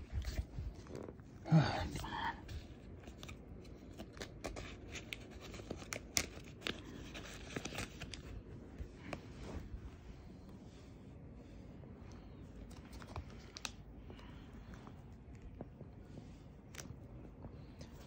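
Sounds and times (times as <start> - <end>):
plastic sleeves crinkling: 2.9 - 9.7.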